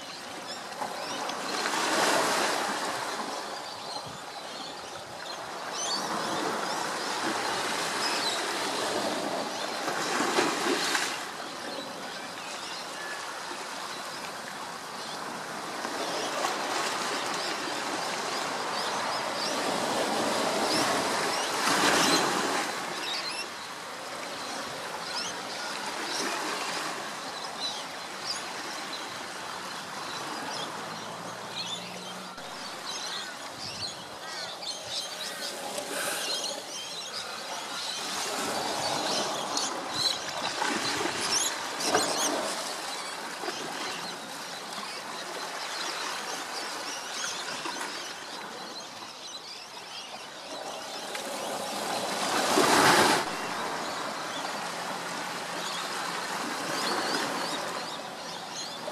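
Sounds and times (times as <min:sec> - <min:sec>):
birds chirping: 0:27.3 - 0:47.5.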